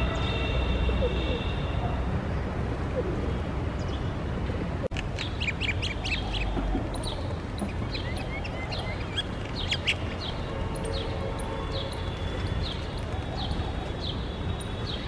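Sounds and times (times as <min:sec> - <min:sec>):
outdoor background noise: 0:00.0 - 0:15.0
small birds chirping: 0:05.0 - 0:15.0.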